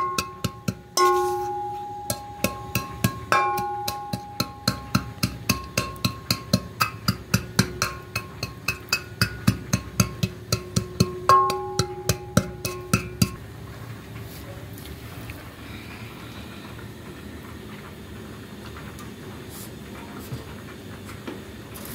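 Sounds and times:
metal pot ringing: 0:00.0 - 0:13.4
wooden pestle pounding in metal pot: 0:00.0 - 0:13.4.

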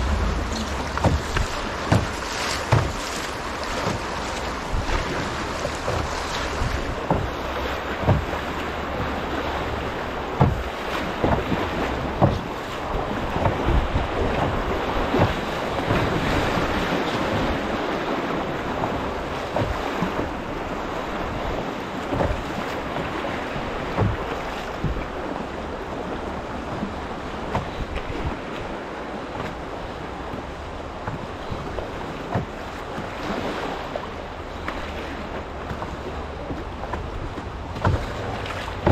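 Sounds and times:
paddle stroke knocks: 0:00.0 - 0:07.4, 0:08.0 - 0:08.4, 0:10.4 - 0:12.5, 0:23.9 - 0:25.2, 0:27.5 - 0:28.1, 0:35.6 - 0:38.9
river water rushing: 0:00.0 - 0:38.9
wind buffeting microphone: 0:00.0 - 0:38.9.

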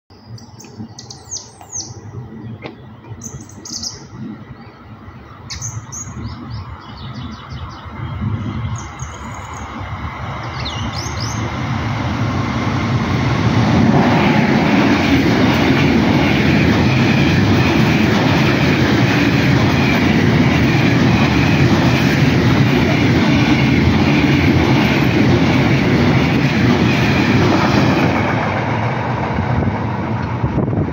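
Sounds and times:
birds chirping: 0:00.1 - 0:11.6
freight train passing: 0:00.1 - 0:30.9.

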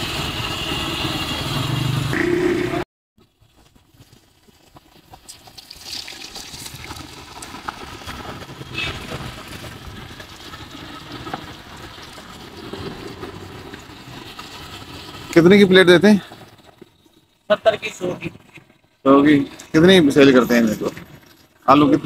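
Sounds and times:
hot oil sizzling and bubbling: 0:00.0 - 0:02.4, 0:03.2 - 0:22.0
small crackles: 0:03.2 - 0:19.8.

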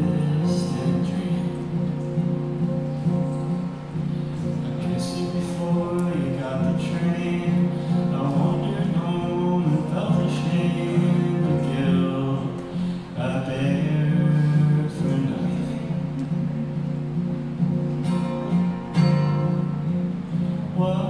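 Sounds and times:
man singing: 0:00.0 - 0:02.0, 0:04.4 - 0:16.5, 0:20.5 - 0:21.0
acoustic guitar chords: 0:00.0 - 0:21.0.

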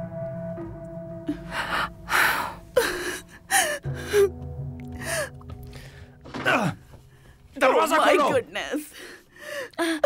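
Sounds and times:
low music drone: 0:00.0 - 0:06.1.

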